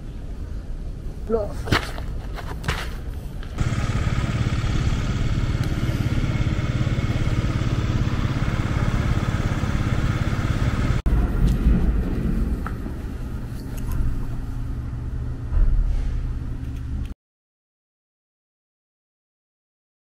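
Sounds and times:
motor vehicle running: 2.2s - 17.1s
low rumble: 3.6s - 17.1s.

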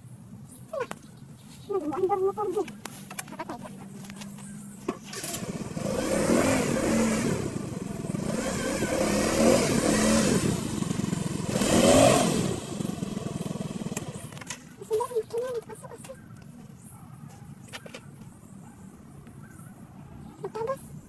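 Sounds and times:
scooter engine revving: 4.9s - 14.5s.

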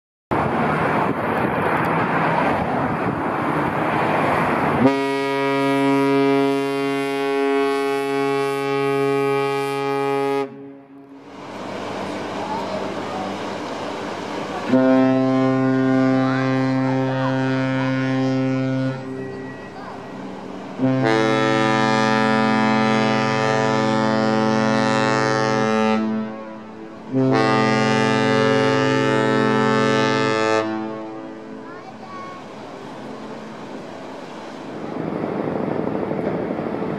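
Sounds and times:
steady rushing noise: 0.3s - 5.0s, 11.0s - 17.1s, 28.0s - 36.9s
ship's horn deep blast: 4.7s - 33.8s.

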